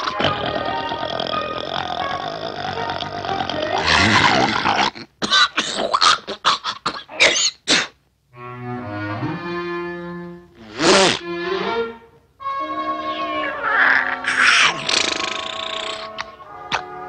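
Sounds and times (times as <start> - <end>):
cartoon dog vocal sounds: 0.0 - 7.7, 13.4 - 16.9
orchestral music with strings: 8.3 - 14.4, 16.1 - 17.0.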